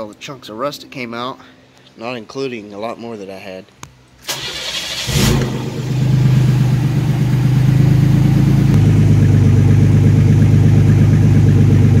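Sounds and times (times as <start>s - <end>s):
car engine idling loudly: 5.5s - 12.0s.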